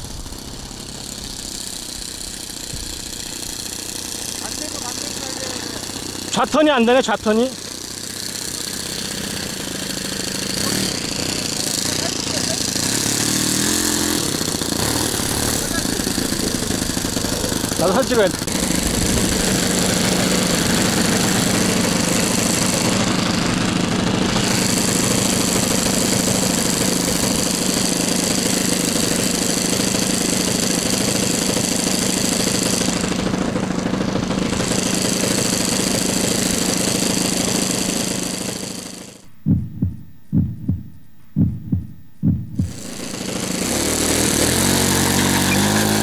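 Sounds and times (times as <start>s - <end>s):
model plane engine running: 0.0s - 39.2s, 42.6s - 46.0s
low thumps: 39.2s - 43.1s.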